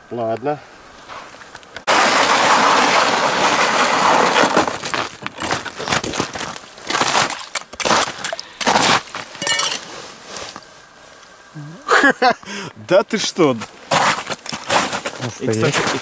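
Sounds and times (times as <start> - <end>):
crunching of snow and ice: 1.1 - 11.2, 13.4 - 16.0.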